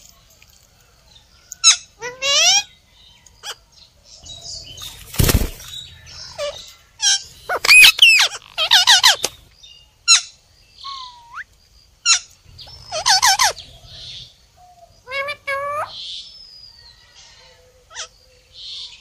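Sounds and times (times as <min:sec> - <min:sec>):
parakeets chirping and squawking: 0:04.3 - 0:09.4, 0:12.1 - 0:14.4, 0:15.1 - 0:16.0.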